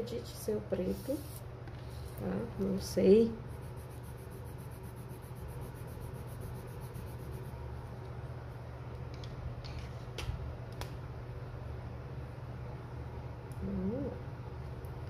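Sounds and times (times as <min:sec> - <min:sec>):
steady low hum: 0:00.0 - 0:15.0
pencil scratching on paper: 0:03.5 - 0:07.6.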